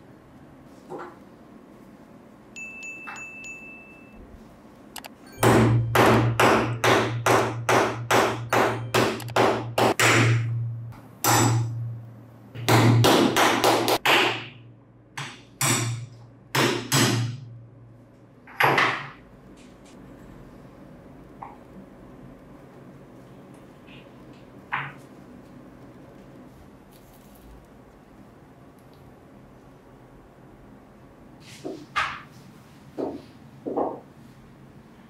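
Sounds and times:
hammer striking metal punch: 5.3 - 12.0, 12.6 - 14.6, 15.2 - 17.5.

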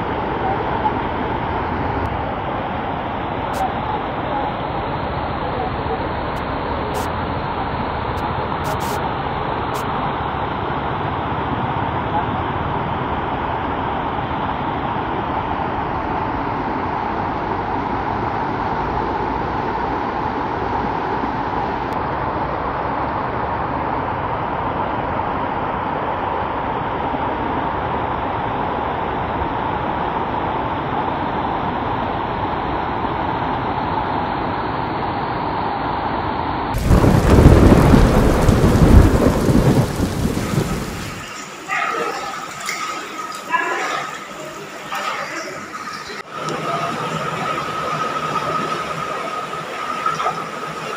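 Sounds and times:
floodwater rushing: 0.0 - 50.9
heavy rain: 0.0 - 50.9
thunder rumble: 36.7 - 43.4.

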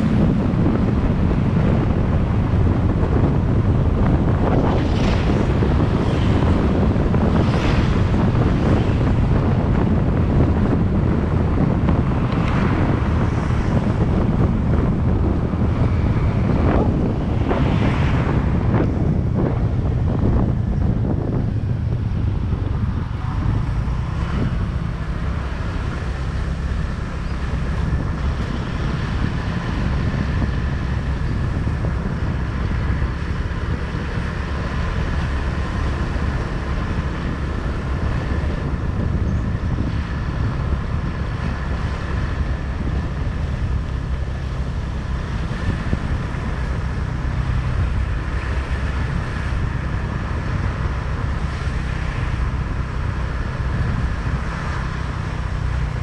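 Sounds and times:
wind rushing over microphone: 0.0 - 56.0.

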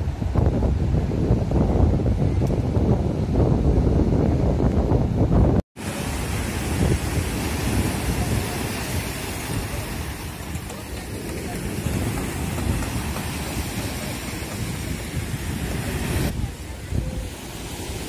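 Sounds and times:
wind buffeting microphone: 0.0 - 18.0
surf breaking on rocky shore: 5.8 - 18.0.

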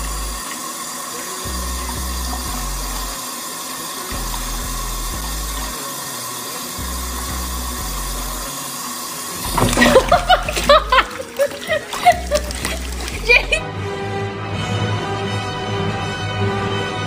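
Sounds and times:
tap running into bath water: 0.0 - 13.6.

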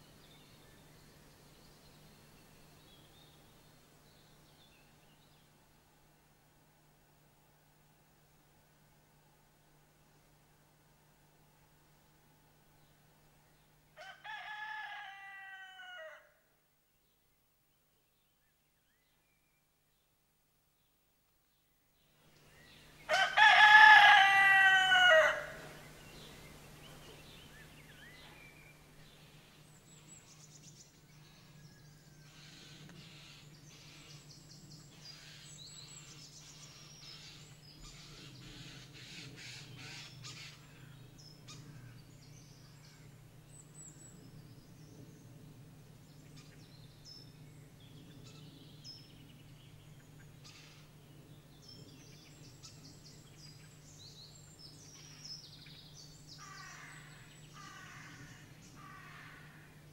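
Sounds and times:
rooster crowing: 14.0 - 16.4, 23.1 - 25.7.

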